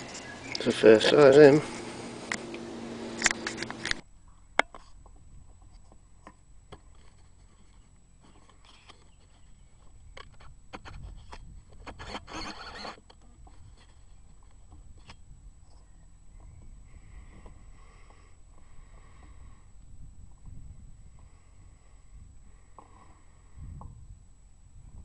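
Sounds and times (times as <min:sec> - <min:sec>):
handling scraping and clicks: 0:03.2 - 0:15.9.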